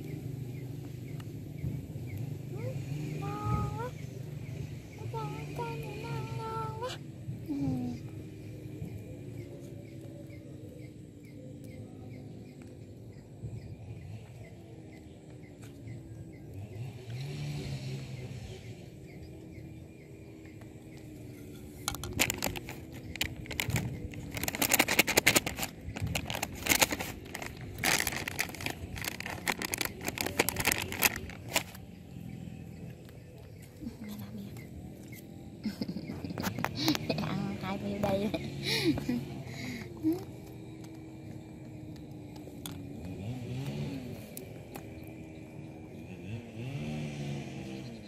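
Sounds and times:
monkey gnawing hard plastic: 21.9s - 31.8s.

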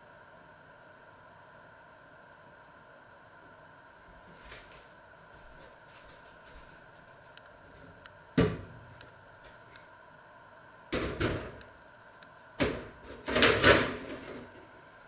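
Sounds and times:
kitchen knocks and clatter: 11.0s - 11.6s, 12.6s - 14.4s.

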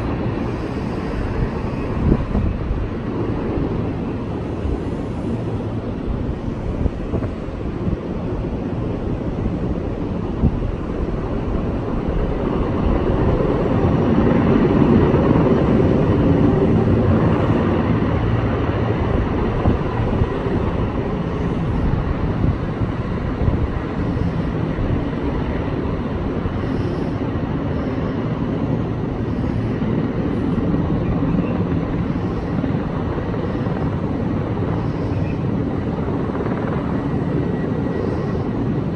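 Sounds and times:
distant helicopter drone: 0.0s - 38.9s.

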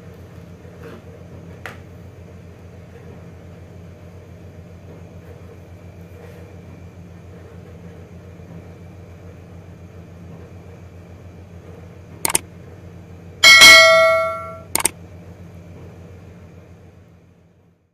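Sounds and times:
steady low hum: 12.1s - 15.3s
bright bell ding: 13.4s - 14.9s.

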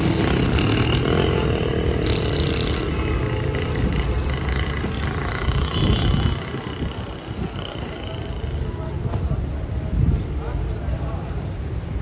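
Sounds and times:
engine drone: 0.0s - 9.2s
passing motorcycle engines: 0.0s - 12.0s.

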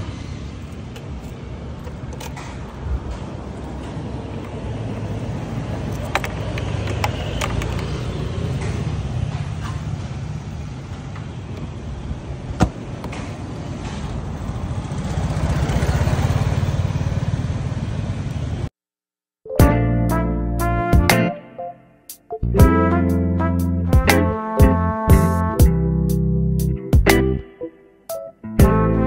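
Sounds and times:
scooter engine idling: 14.5s - 18.6s.

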